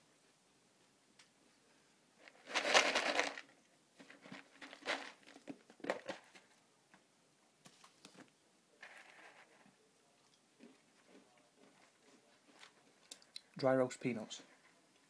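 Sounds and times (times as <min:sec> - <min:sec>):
plastic tub rattling: 0:02.2 - 0:06.5.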